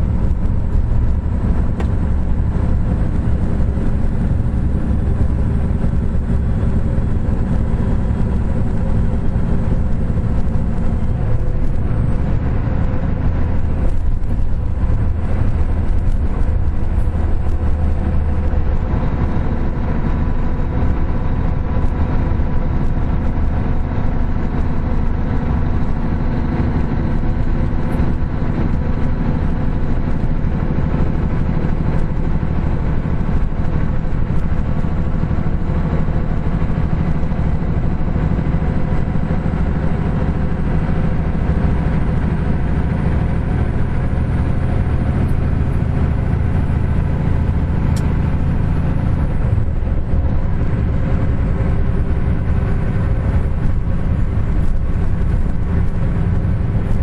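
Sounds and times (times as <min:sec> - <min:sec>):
heavy diesel truck engine running: 0:00.0 - 0:57.0.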